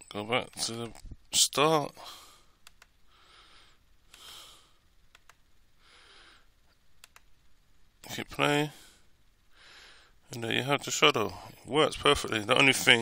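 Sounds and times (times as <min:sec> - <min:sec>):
soft breaths: 0:01.9 - 0:06.9, 0:08.6 - 0:10.3
faint clicks: 0:02.6 - 0:03.0, 0:04.1 - 0:04.3, 0:05.1 - 0:05.4, 0:06.6 - 0:07.3.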